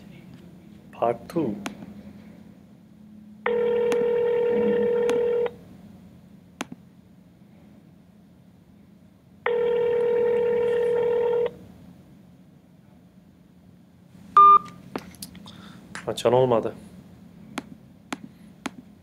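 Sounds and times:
telephone ringback tone: 0:03.4 - 0:05.6, 0:09.4 - 0:11.6, 0:14.4 - 0:14.7.

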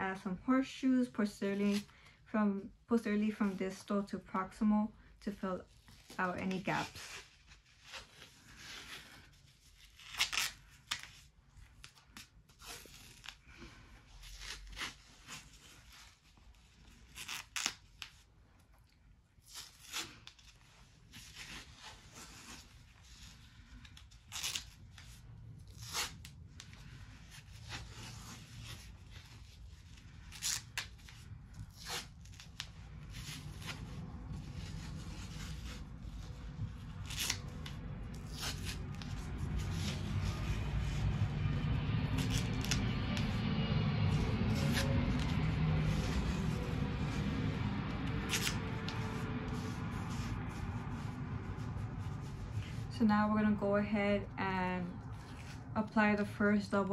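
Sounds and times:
tape ripping: 0:09.7 - 0:13.5, 0:14.2 - 0:16.2, 0:16.9 - 0:18.2, 0:19.4 - 0:23.2, 0:23.8 - 0:52.4.

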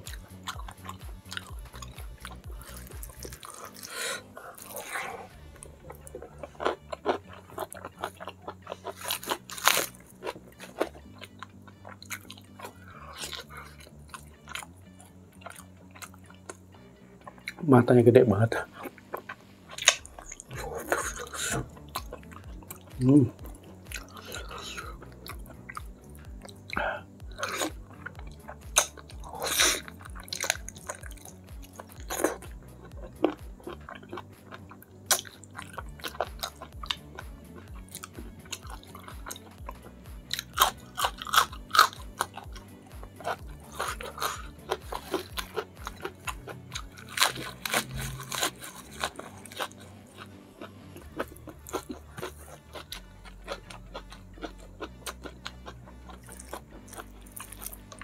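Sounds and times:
chewing and crunching food: 0:00.0 - 0:58.0
wet mouth sounds: 0:18.7 - 0:32.6.

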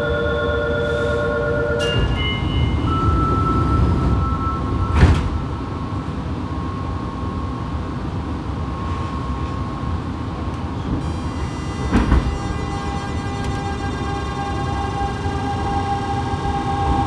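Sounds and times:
train low hum: 0:00.0 - 0:17.0
inverter electronic whine: 0:11.0 - 0:17.0.

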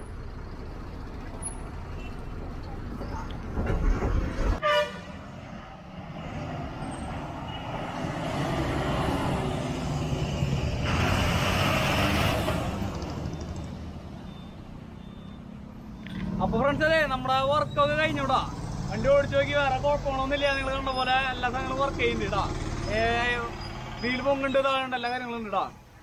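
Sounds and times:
truck horn blast: 0:04.6 - 0:05.2
truck engine driving past: 0:05.2 - 0:24.6.

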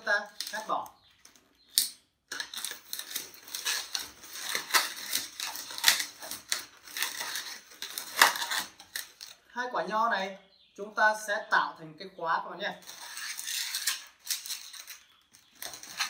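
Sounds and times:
rubber balloon squeaking: 0:02.3 - 0:09.3.

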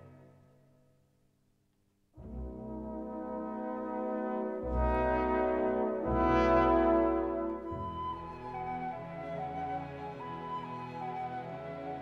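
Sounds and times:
slow orchestral music: 0:02.2 - 0:12.0.

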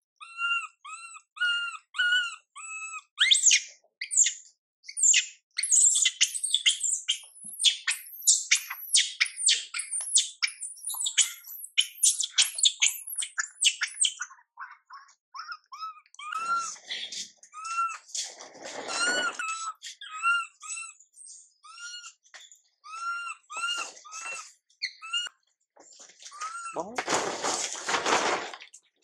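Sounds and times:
baby monkey screaming: 0:00.2 - 0:04.3, 0:05.0 - 0:16.8, 0:18.9 - 0:21.0, 0:22.8 - 0:25.3.

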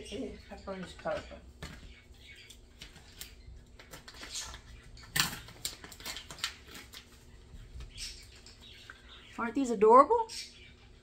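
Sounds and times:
kitchen items clicking and rustling: 0:00.6 - 0:01.9, 0:02.8 - 0:08.7.

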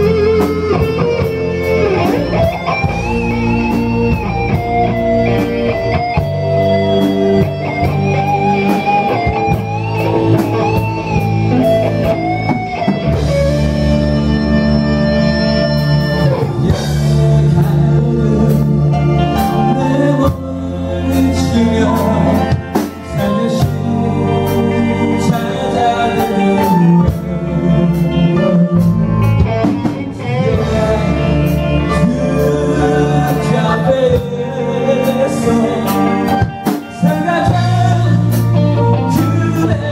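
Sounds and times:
electric guitar lead: 0:00.0 - 0:39.9
rock band playing: 0:00.0 - 0:39.9
man singing: 0:15.7 - 0:39.9.

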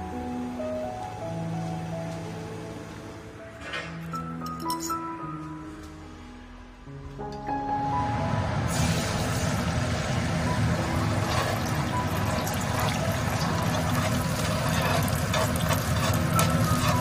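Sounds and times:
eggs sizzling in hot oil: 0:08.7 - 0:17.0.

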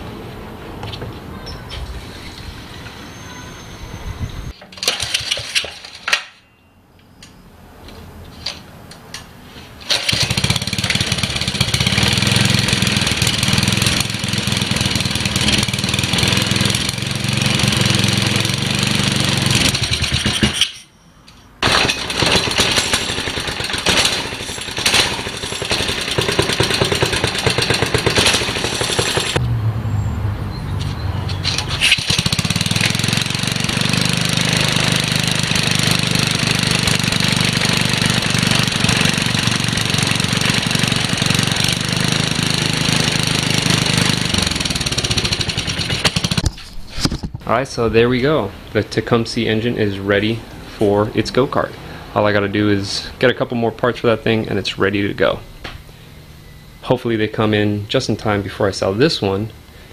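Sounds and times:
small kart engine running: 0:04.8 - 0:05.9, 0:09.8 - 0:20.8, 0:21.6 - 0:29.4, 0:31.5 - 0:46.6.

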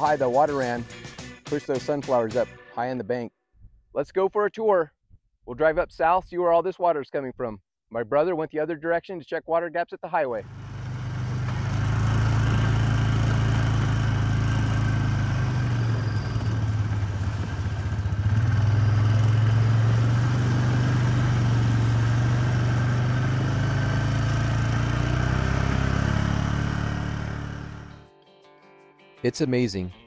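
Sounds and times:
quad bike engine running: 0:10.4 - 0:27.9.

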